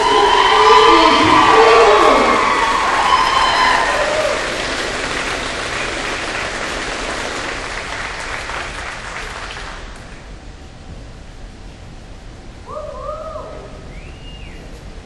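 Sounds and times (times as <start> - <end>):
crowd applause: 0.0 - 10.2.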